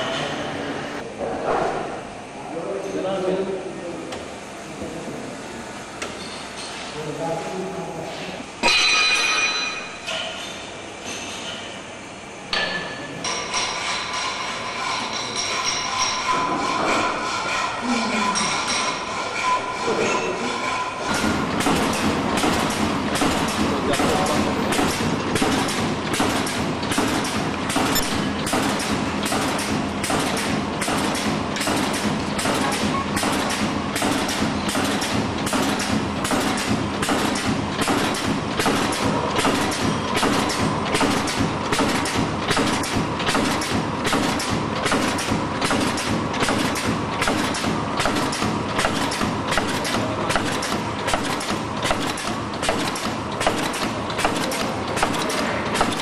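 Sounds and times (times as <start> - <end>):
constant machine hum: 0.0 - 56.0
packing machine clatter: 21.1 - 56.0.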